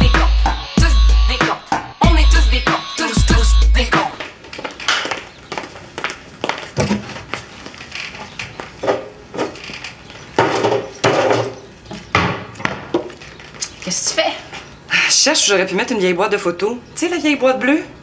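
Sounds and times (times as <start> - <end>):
bass-heavy theme music: 0.0 - 4.1.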